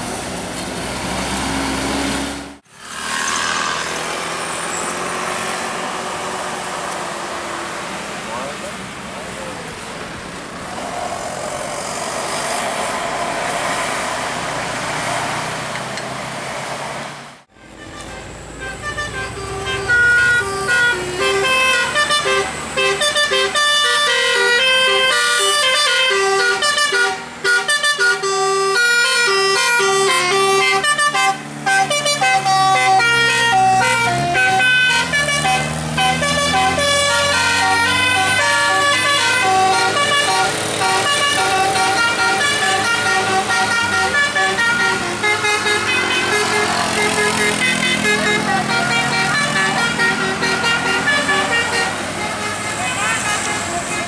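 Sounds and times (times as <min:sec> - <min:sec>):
vehicle passing: 0:00.0 - 0:24.1, 0:29.7 - 0:54.0
musical horn playing a tune: 0:17.5 - 0:54.0.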